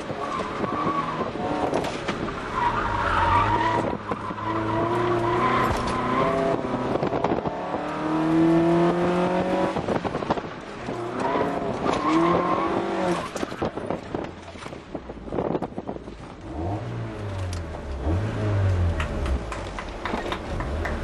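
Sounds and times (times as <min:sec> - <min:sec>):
tires squealing: 0:00.0 - 0:07.0, 0:10.9 - 0:14.0
car knocking and rattling: 0:00.0 - 0:07.7, 0:09.6 - 0:16.4, 0:18.8 - 0:21.0.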